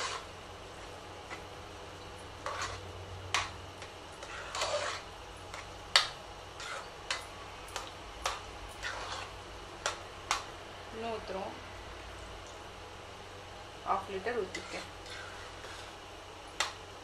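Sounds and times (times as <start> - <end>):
metal spoon scraping a pot: 0.0 - 0.3, 2.4 - 3.5, 4.2 - 5.6, 6.6 - 7.2, 8.2 - 10.4, 14.4 - 16.0.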